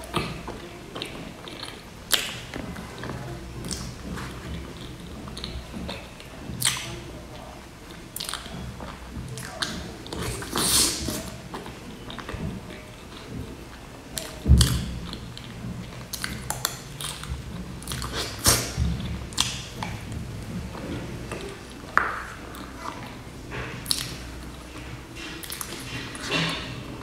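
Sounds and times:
person chewing: 0.0s - 26.8s
lip smacks: 16.1s - 20.0s.

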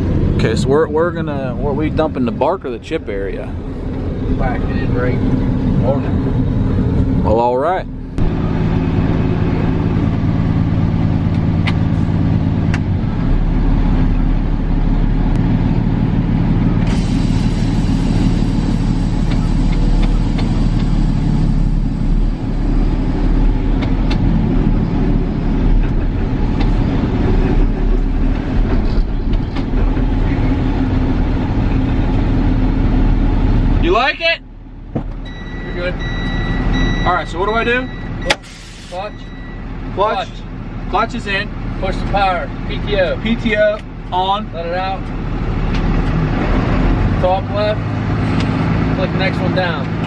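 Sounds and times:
deep low rumble: 0.0s - 33.8s
truck diesel engine running: 0.0s - 50.0s.

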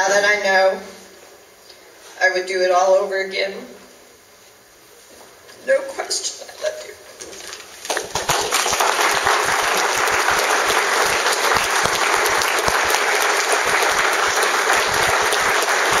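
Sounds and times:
people applauding: 7.8s - 16.0s.

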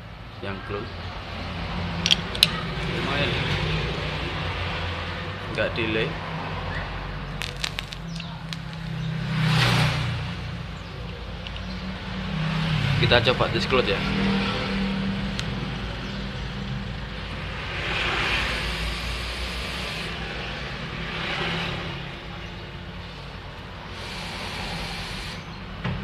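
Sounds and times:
breathy vaping hisses: 7.4s - 9.0s, 18.2s - 20.5s, 23.9s - 25.6s.

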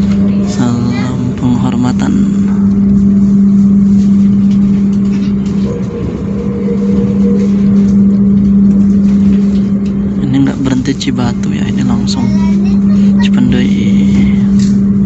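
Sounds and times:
train coach hum and rumble: 0.0s - 15.0s
faint higher tone: 5.3s - 10.2s.

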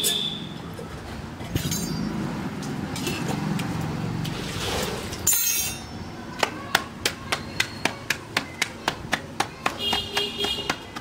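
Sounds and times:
hands patting roti dough: 6.4s - 11.0s.

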